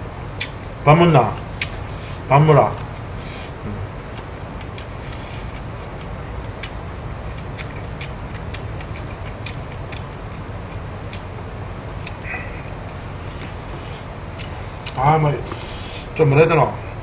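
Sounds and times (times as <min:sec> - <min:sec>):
low room hum: 0:00.0 - 0:17.0
small clicking mouth sounds: 0:00.4 - 0:00.7, 0:01.6 - 0:01.8, 0:04.1 - 0:11.3, 0:11.9 - 0:12.8
man chewing food: 0:01.4 - 0:02.2, 0:02.8 - 0:16.2.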